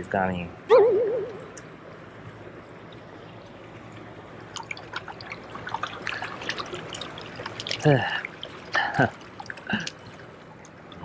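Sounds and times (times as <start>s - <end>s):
water splashes and drips: 1.9s - 11.0s
small waves lapping on rocks: 4.5s - 11.0s.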